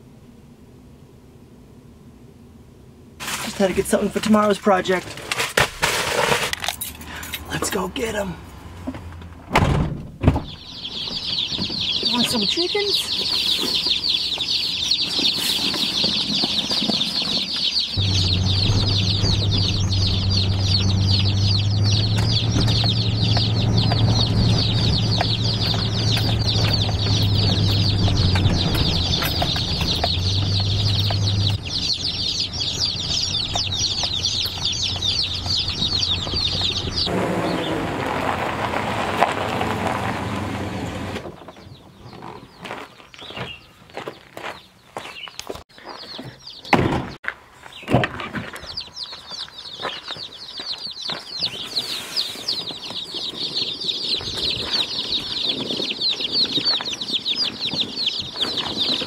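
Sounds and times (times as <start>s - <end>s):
chicks peeping: 10.4s - 37.8s, 40.7s - 46.8s, 47.7s - 59.0s
vehicle engine drone: 18.0s - 41.4s.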